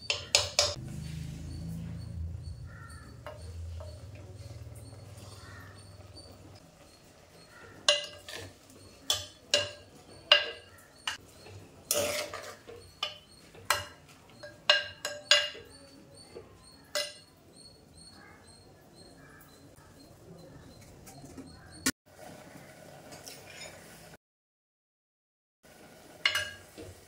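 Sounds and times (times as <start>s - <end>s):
metal ladle clinking in clay pot: 0.0s - 0.8s, 7.7s - 16.0s, 16.9s - 17.3s.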